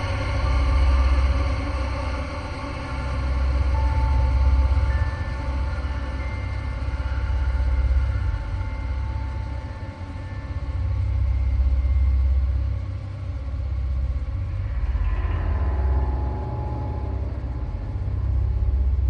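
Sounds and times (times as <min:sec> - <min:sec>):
deep rumbling drone: 0:00.0 - 0:19.0.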